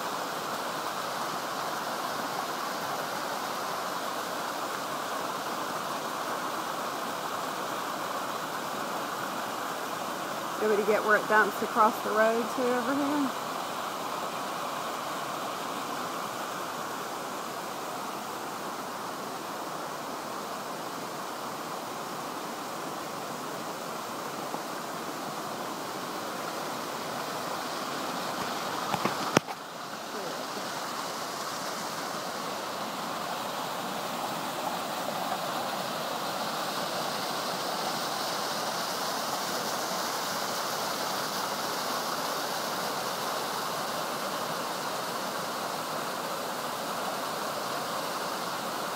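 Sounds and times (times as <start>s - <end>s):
waterfall rushing over rock: 0.0s - 48.9s.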